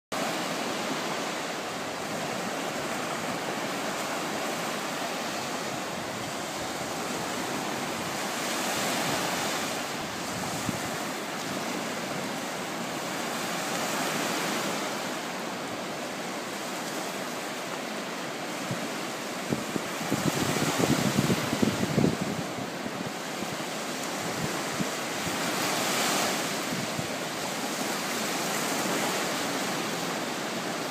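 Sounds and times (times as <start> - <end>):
waves breaking on sandy beach: 0.2 - 30.9
wind buffeting microphone: 5.3 - 11.2, 18.6 - 25.6.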